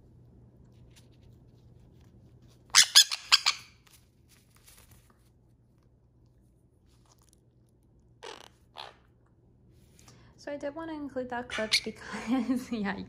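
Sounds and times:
parrots squawking: 0:02.7 - 0:03.8, 0:08.2 - 0:09.2, 0:11.5 - 0:12.0.

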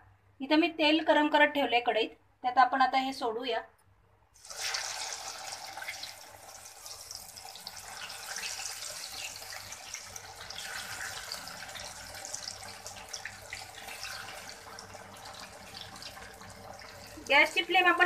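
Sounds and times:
hot oil sizzling: 0:04.4 - 0:18.0.

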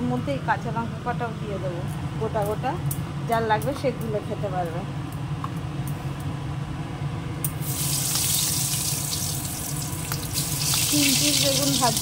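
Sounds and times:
low steady hum: 0:00.0 - 0:12.0
eggplant sizzling in hot oil: 0:07.6 - 0:12.0.

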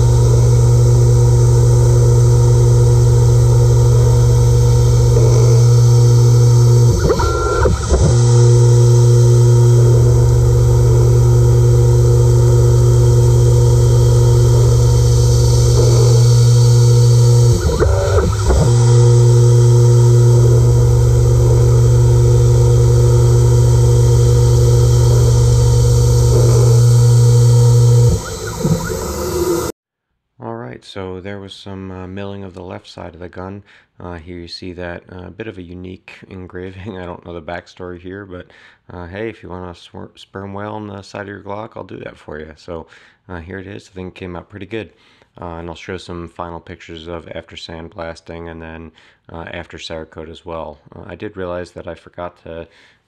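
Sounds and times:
milling machine cutting steel: 0:00.0 - 0:29.7.

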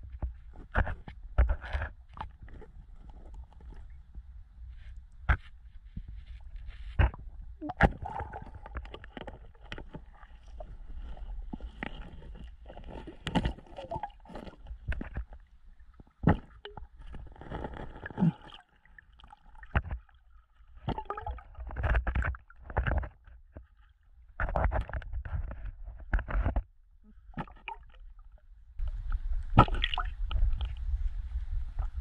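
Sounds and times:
underwater bubbling: 0:07.6 - 0:15.3, 0:20.8 - 0:21.7.

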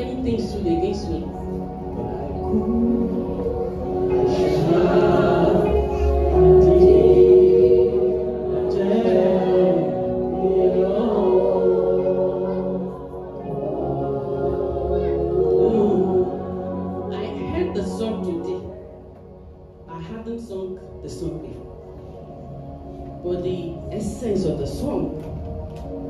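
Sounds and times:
backing singers: 0:01.7 - 0:17.1
woman singing lead gospel: 0:02.4 - 0:18.5.

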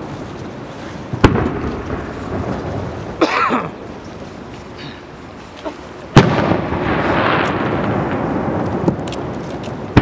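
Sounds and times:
fireworks rush of noise: 0:00.0 - 0:10.0
fireworks bang: 0:01.2 - 0:02.8, 0:06.1 - 0:09.1.

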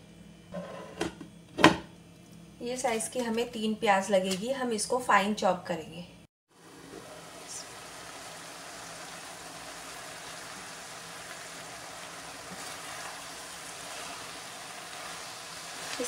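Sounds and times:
meat and lentils sizzling in a pan: 0:06.6 - 0:16.0.

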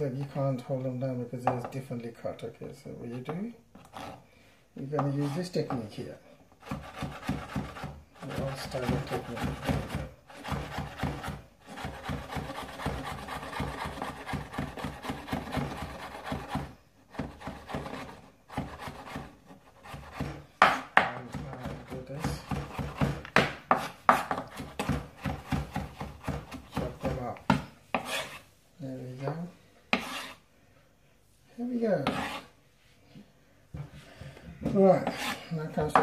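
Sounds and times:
knife chopping on wooden board: 0:06.6 - 0:28.4, 0:29.9 - 0:30.4, 0:32.0 - 0:32.4.

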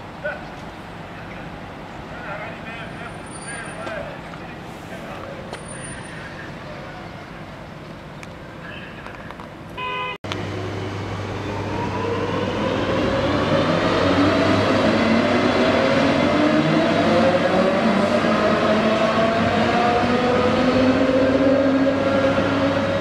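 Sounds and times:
short horn toot: 0:09.8 - 0:10.2
electric locomotive whine: 0:10.3 - 0:23.0.

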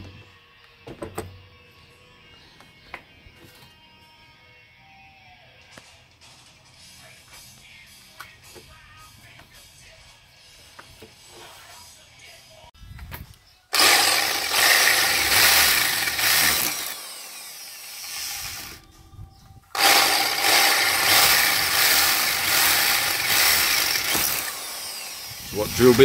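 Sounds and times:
electric drill boring into metal: 0:13.7 - 0:18.9, 0:19.7 - 0:26.0.

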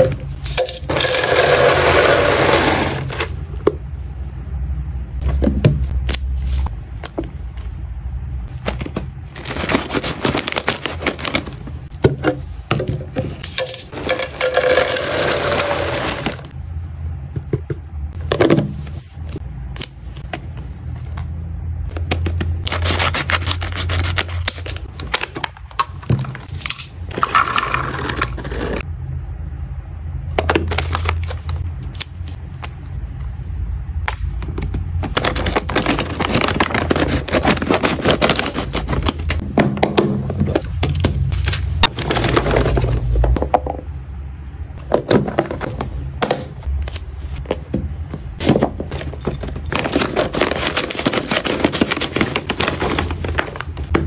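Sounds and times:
treat cubes rattling in plastic canister: 0:00.6 - 0:03.3, 0:14.0 - 0:16.4
packaging rustling: 0:08.7 - 0:11.9, 0:35.0 - 0:39.4, 0:48.5 - 0:53.9.

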